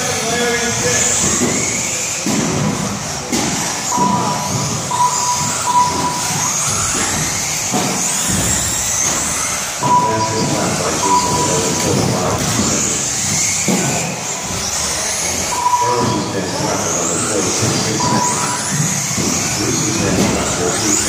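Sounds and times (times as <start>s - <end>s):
rc car motor whine: 0.0s - 21.0s
short electronic beeps: 3.9s - 7.2s, 9.8s - 12.0s, 15.4s - 18.7s.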